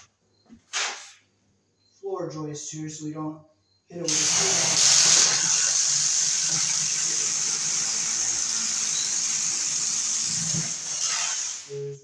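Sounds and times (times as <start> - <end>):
cordless drill boring through wood: 4.1 - 11.8.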